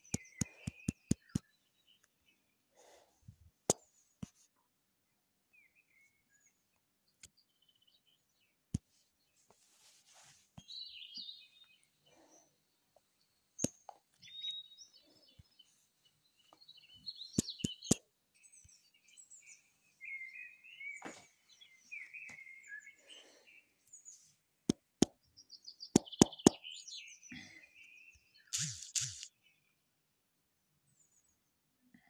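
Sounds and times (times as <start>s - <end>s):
small bird chirping: 0.0s - 2.5s, 10.6s - 24.3s, 25.2s - 29.8s
sharp clicks: 28.5s - 29.3s.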